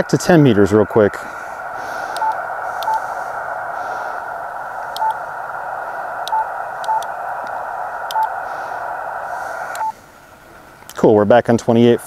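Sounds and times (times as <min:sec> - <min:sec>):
radio static hiss: 0:00.0 - 0:12.0
short beeps: 0:02.2 - 0:03.1, 0:05.0 - 0:05.2, 0:06.3 - 0:07.1.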